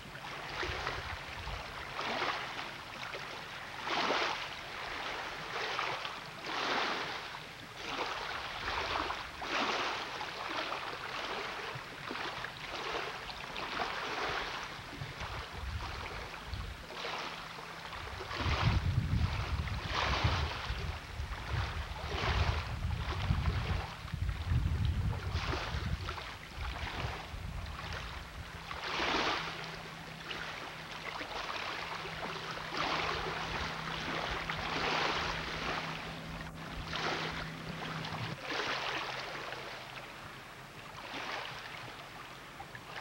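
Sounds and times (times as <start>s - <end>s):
small waves lapping: 0.0s - 43.0s
wind buffeting microphone: 14.8s - 16.9s, 18.0s - 29.5s.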